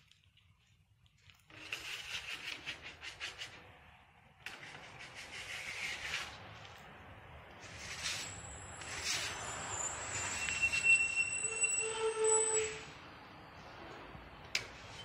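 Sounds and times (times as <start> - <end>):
paint scraped across canvas: 1.5 - 3.7, 4.5 - 6.6, 7.6 - 11.1.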